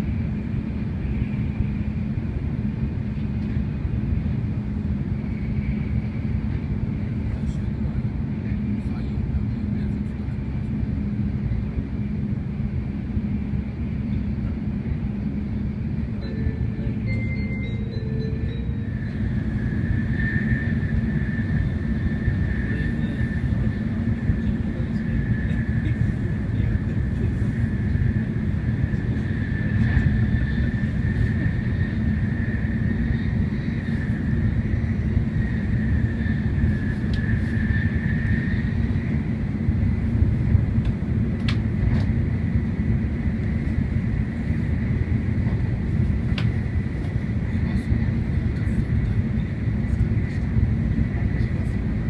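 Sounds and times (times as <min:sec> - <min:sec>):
train rumble from inside: 0:00.0 - 0:52.0
faint high steady tone: 0:16.2 - 0:23.2.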